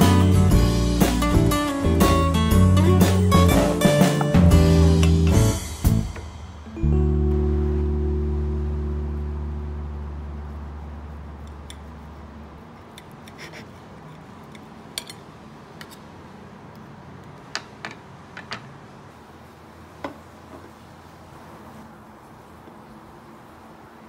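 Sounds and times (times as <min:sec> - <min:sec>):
soft background music: 0:00.0 - 0:11.2.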